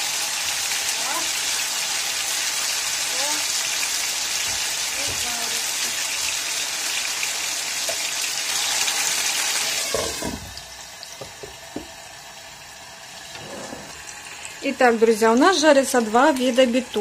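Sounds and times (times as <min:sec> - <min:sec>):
meat sizzling in frying pan: 0:00.0 - 0:17.0
glass lid thud on pan: 0:09.9 - 0:10.5.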